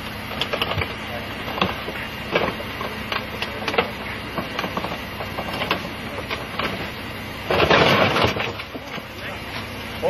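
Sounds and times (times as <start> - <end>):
steady mechanical running: 0.0 - 10.0.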